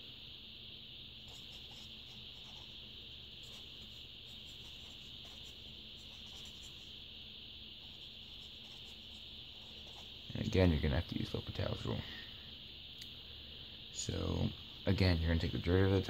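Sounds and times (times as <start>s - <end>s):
high-pitched hiss: 0.0s - 16.0s
marker scratching on paper: 1.2s - 7.0s, 7.8s - 10.3s.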